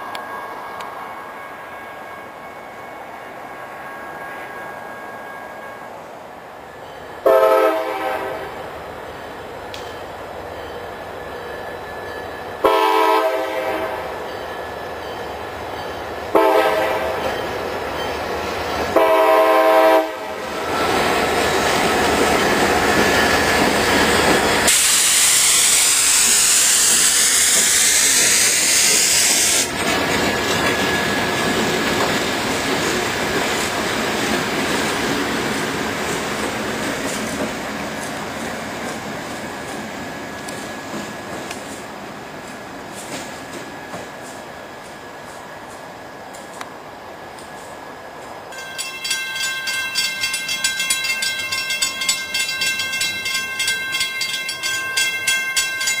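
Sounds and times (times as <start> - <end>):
train wheels on rails: 0.0 - 56.0
locomotive horn blasts: 7.2 - 8.6, 12.6 - 14.1, 16.3 - 17.3, 18.9 - 20.5
locomotive engines passing: 13.4 - 56.0.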